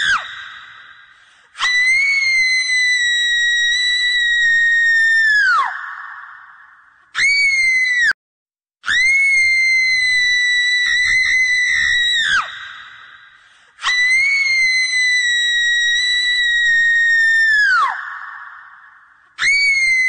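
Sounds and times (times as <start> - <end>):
shrill drawn-out screams: 8.9 - 12.5.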